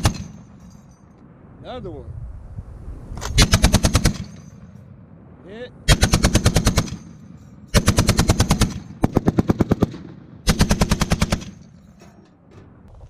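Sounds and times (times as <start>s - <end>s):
machine gun firing bursts: 3.4s - 4.4s, 5.9s - 7.1s, 7.7s - 11.7s.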